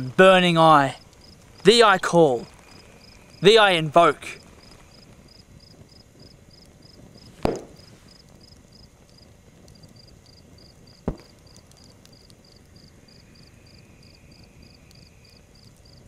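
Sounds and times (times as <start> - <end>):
cricket chirping: 0.0 - 16.0
book snapped shut: 7.4 - 7.7.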